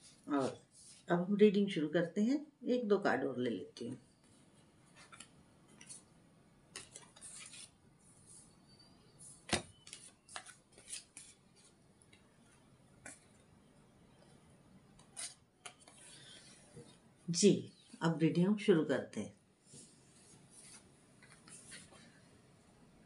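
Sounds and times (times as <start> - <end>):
cards flicking and rustling: 6.7 - 7.8, 9.4 - 12.2, 15.0 - 16.2.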